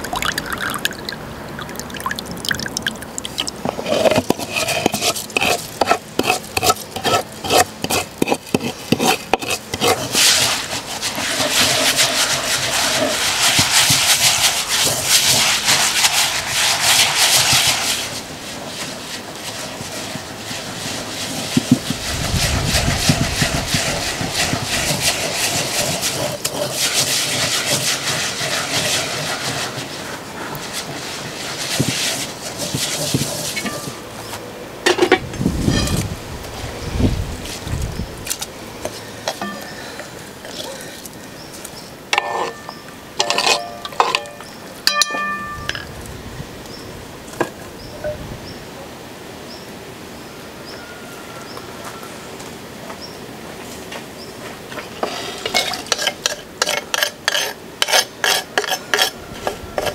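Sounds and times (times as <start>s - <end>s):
grain scraping against clay bowl: 0.1s - 36.1s, 42.1s - 44.5s, 55.0s - 59.9s
wooden pestle pounding grain: 11.2s - 18.0s, 21.3s - 29.8s.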